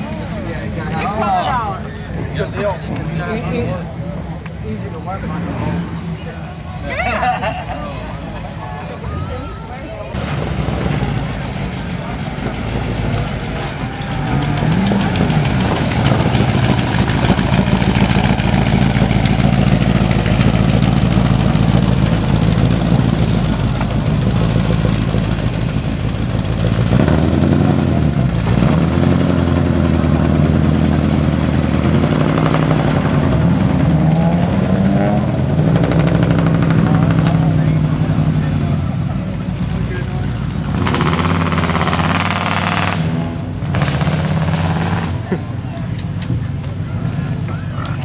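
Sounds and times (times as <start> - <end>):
car engine revving: 10.2 - 46.2.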